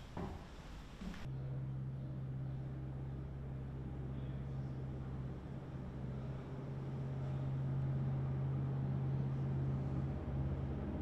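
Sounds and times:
low machine hum: 0.0s - 11.0s.

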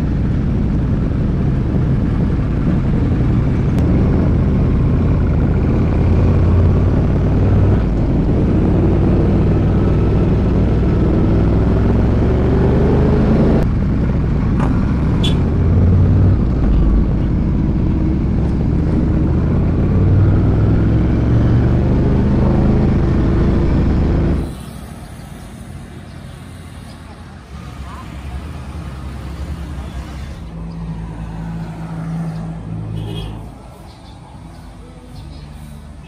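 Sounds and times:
motorcycle engine accelerating: 0.0s - 24.5s.

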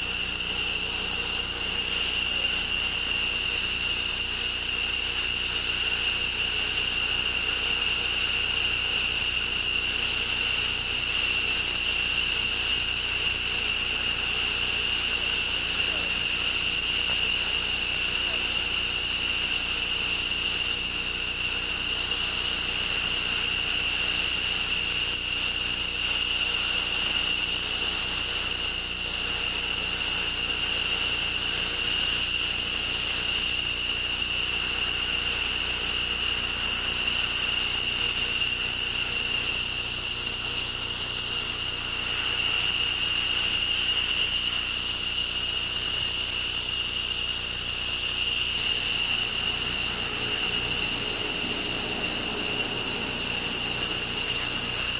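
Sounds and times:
jet engines whining while taxiing: 15.3s - 16.3s, 48.2s - 54.9s.

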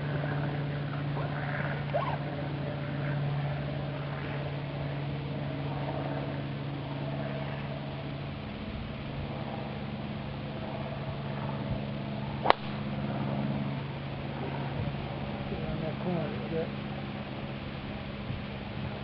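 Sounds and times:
steady low hum: 0.0s - 19.0s
golf club striking ball: 12.4s - 13.1s.

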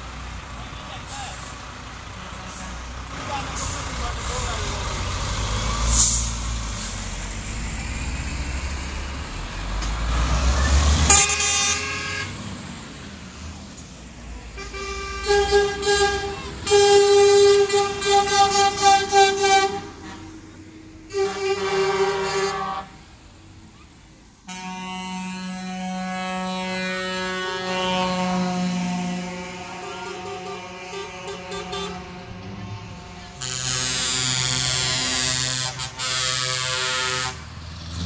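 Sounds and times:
truck diesel engines rumbling: 0.0s - 38.0s
truck air horn blasts: 2.2s - 4.7s, 11.0s - 12.4s, 14.5s - 23.1s, 24.4s - 37.5s.

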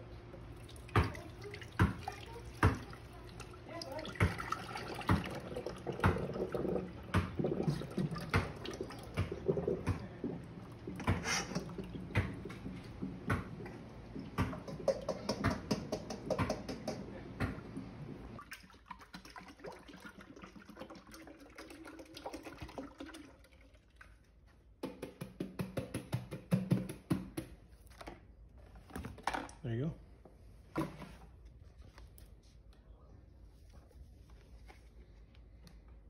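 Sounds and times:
liquid pouring: 0.4s - 17.0s, 17.7s - 24.3s
water running into steel sink: 0.7s - 13.0s
plastic bottle knocking: 14.2s - 17.6s.

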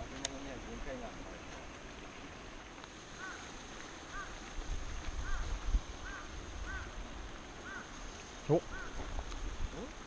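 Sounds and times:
bird calling: 3.1s - 4.4s, 5.2s - 7.0s, 7.6s - 9.1s.

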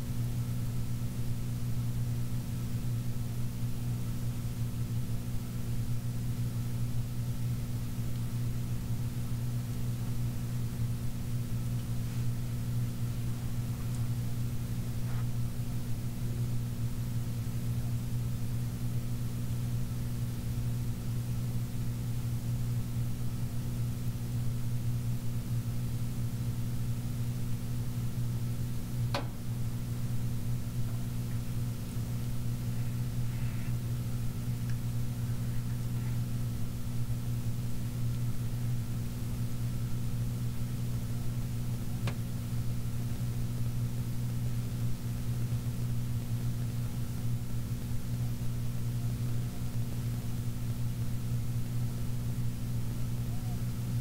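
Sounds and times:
washing machine motor hum: 25.4s - 54.0s.

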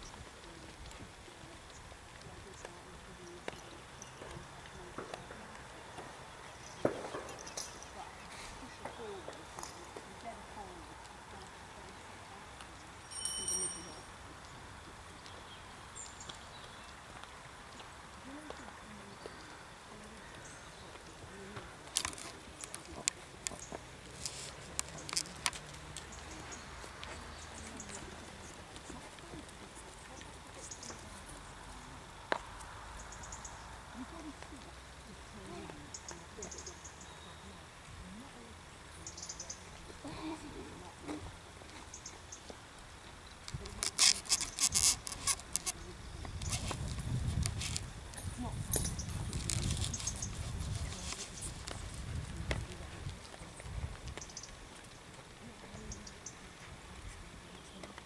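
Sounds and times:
distant murmuring voices: 0.0s - 58.0s
rustling and crackling: 0.0s - 58.0s.

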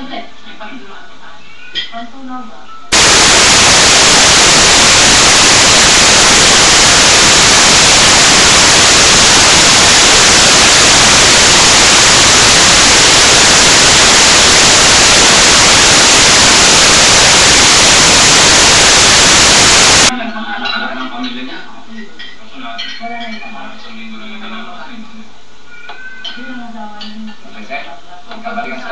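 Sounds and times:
static hiss: 2.9s - 20.1s.

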